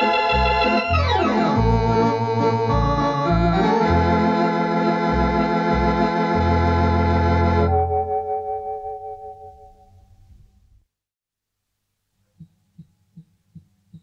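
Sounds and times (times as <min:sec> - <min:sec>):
low bass pedal notes: 0:00.0 - 0:04.4
electronic organ sustained chords: 0:00.0 - 0:09.7.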